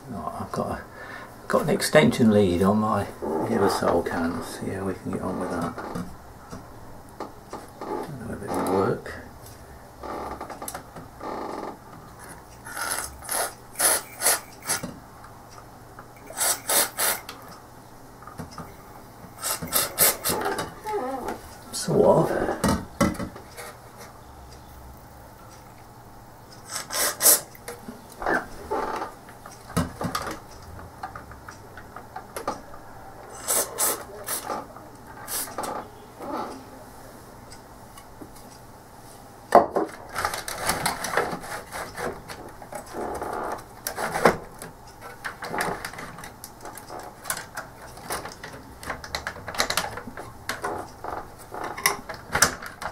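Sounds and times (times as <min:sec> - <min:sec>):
aerosol spray hisses: 0:16.3 - 0:17.2
plastic and metal parts clicking: 0:43.8 - 0:50.8.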